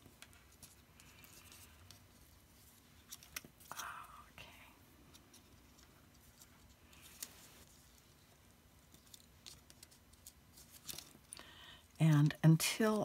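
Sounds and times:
foil tape rustling: 5.1 - 11.4.

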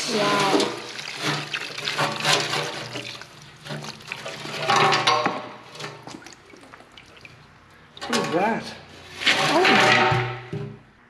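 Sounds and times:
fuel gurgling and splashing into pan: 0.0 - 8.0.

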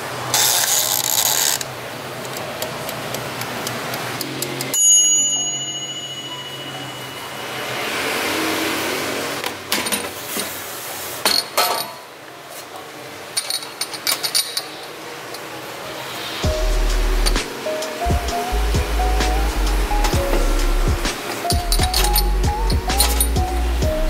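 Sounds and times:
timer bell ding: 4.7 - 7.8
ceramic cups clinking: 13.4 - 15.0
air fryer humming: 16.4 - 24.0.

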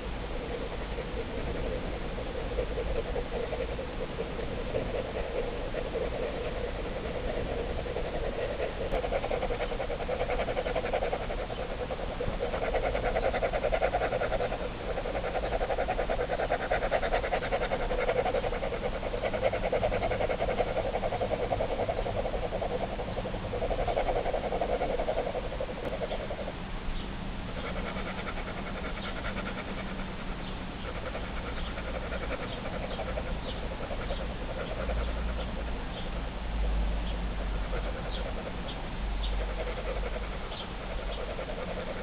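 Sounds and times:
steady low hum: 0.0 - 42.0
pen scribbling on paper: 4.6 - 26.0.

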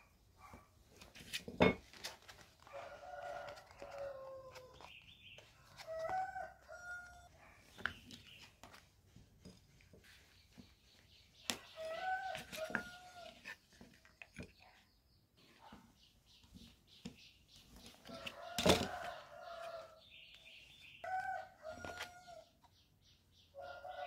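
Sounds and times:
card folding against metal ruler: 3.4 - 5.0.

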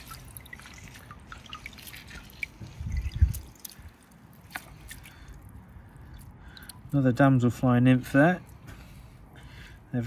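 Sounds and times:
wet weed squelching in hands: 0.0 - 7.0
water dripping and trickling: 0.0 - 7.4.

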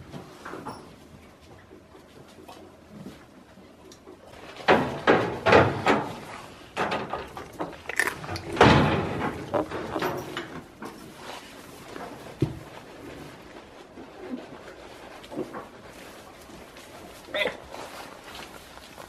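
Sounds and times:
goats bumping against camera: 6.8 - 11.1.

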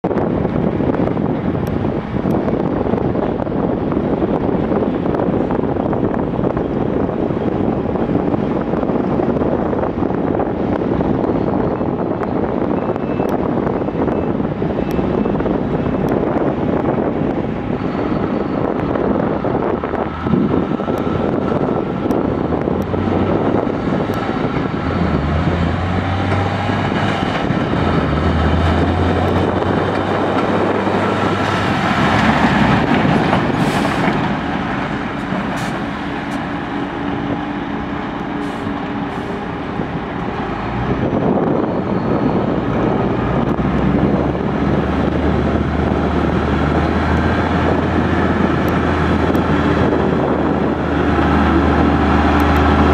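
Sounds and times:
diesel truck driving past: 13.4 - 52.9.

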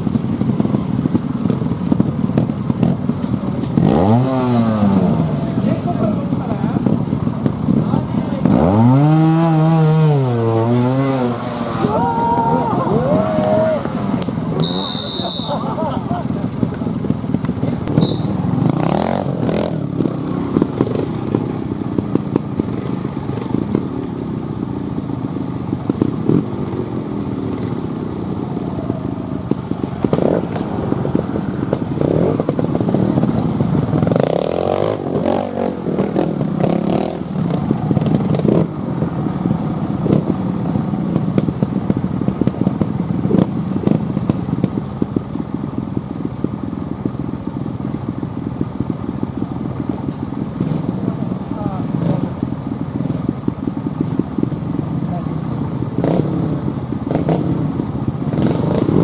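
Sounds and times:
motorcycle engines idling and revving: 0.0 - 59.0.

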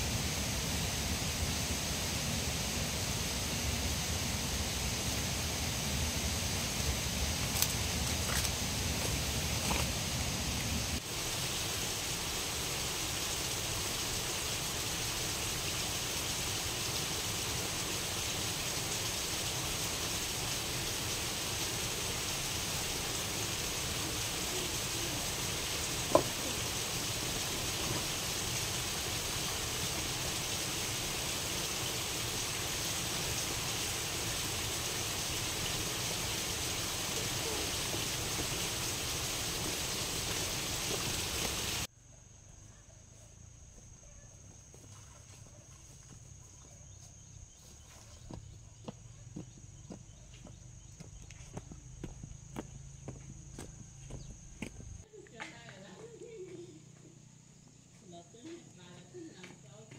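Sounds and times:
steady hiss: 0.0 - 41.9.

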